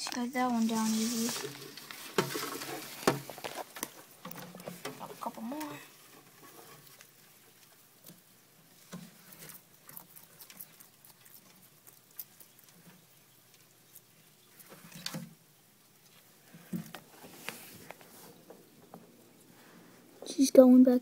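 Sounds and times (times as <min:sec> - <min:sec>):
scratchy rustles: 0:00.0 - 0:05.4, 0:16.0 - 0:18.5.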